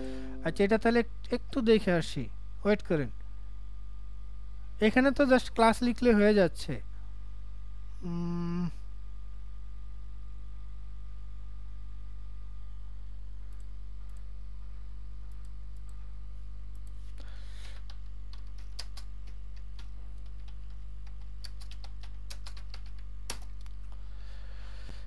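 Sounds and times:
steady low hum: 0.0 - 25.0
computer keyboard typing: 17.7 - 23.7.

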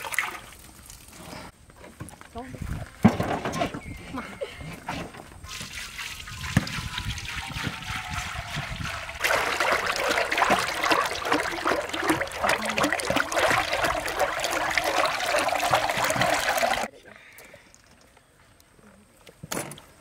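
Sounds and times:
oil pouring and splashing: 0.0 - 1.2, 5.4 - 16.9.

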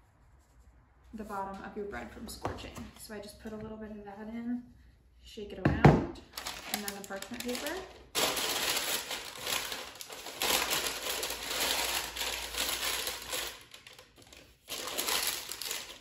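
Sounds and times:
parchment paper crinkling: 6.3 - 16.0.

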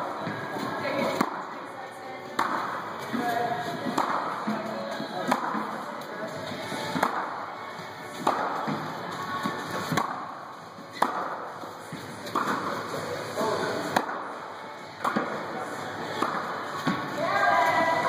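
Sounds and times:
background music: 0.0 - 18.0
tennis rackets striking balls: 1.1 - 1.5, 2.4 - 3.2, 3.8 - 4.6, 5.2 - 5.8, 6.8 - 7.4, 8.1 - 12.9, 13.9 - 17.1.

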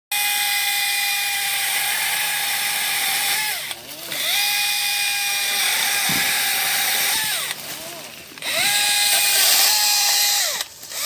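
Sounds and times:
electric saw whining: 0.1 - 11.0.

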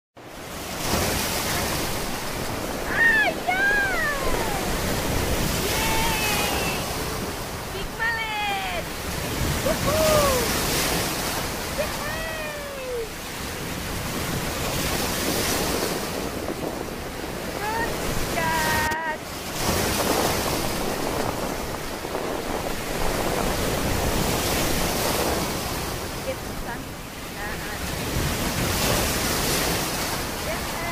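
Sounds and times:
surf breaking on beach: 0.2 - 30.9
wind buffeting the microphone: 0.5 - 30.9.

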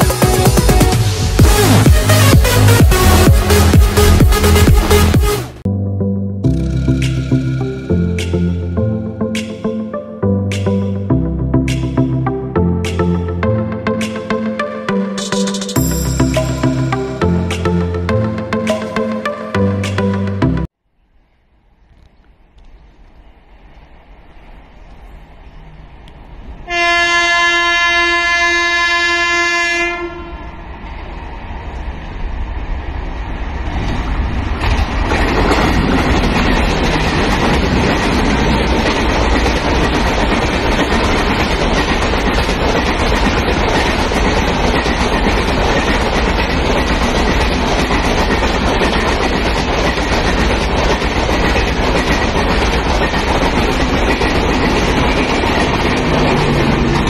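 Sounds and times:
locomotive horn blast: 26.6 - 30.6
train wheels rushing on rails: 29.0 - 57.0.

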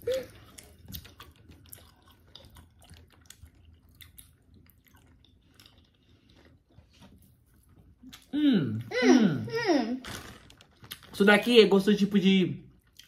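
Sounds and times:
faint chewing: 0.0 - 8.9, 10.0 - 11.2.

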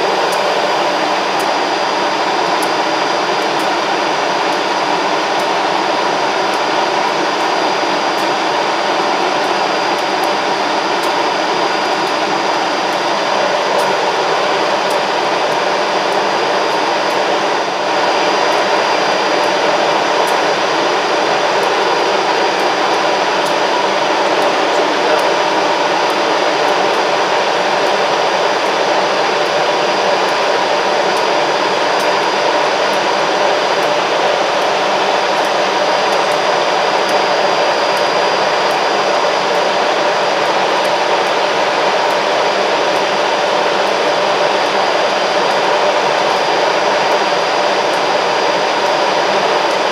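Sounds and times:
diesel locomotive engine humming: 9.1 - 48.2.

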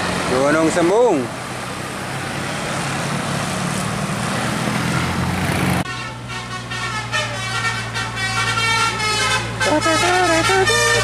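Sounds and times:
passing road traffic: 0.0 - 11.0
low engine hum: 1.3 - 11.0
bus horn playing melody: 5.8 - 11.0.

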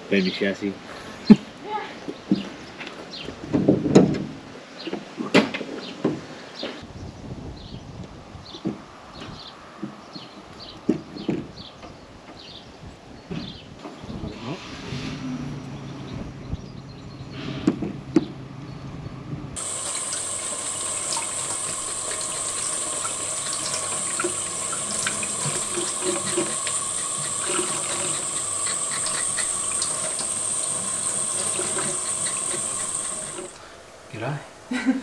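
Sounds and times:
tap water running into sink: 19.6 - 33.7.

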